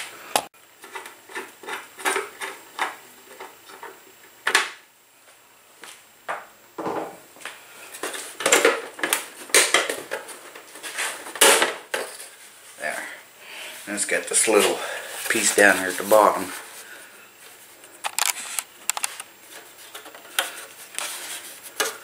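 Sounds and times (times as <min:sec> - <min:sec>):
screwdriver clicks and scrapes: 0:18.0 - 0:19.3.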